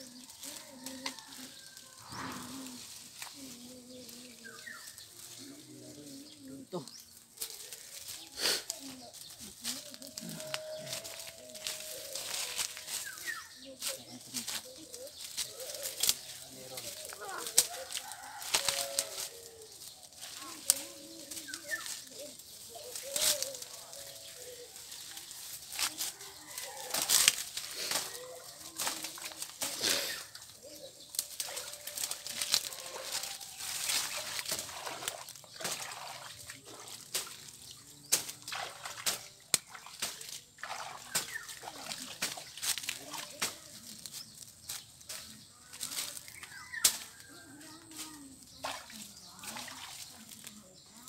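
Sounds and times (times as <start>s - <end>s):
brush and twigs rustling: 0.0s - 51.0s
water sloshing: 31.3s - 43.1s, 48.6s - 50.6s.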